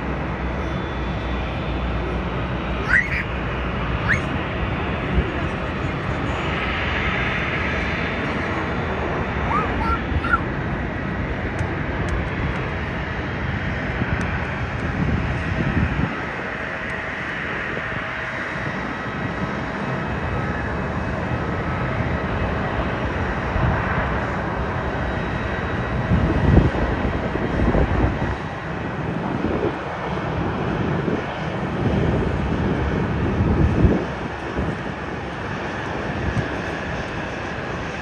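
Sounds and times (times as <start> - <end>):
jet engines running: 0.0 - 38.0
wind buffeting microphone: 0.0 - 38.0.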